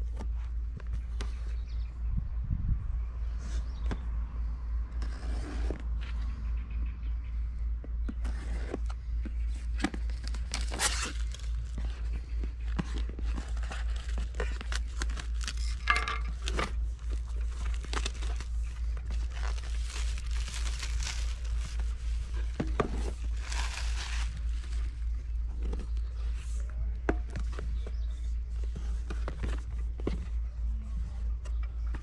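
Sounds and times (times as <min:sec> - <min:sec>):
steady low hum: 0:00.0 - 0:32.0
plastic wrap crinkling and tearing: 0:10.0 - 0:11.9, 0:13.3 - 0:25.1.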